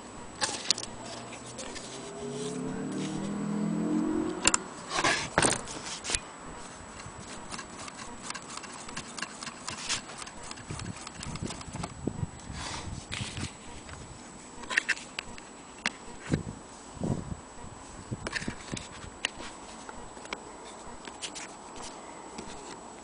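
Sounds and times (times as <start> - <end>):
low hum: 0.0 - 8.4.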